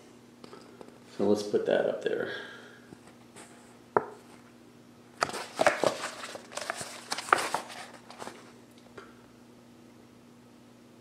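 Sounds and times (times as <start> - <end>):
book pages rustling: 5.2 - 8.6.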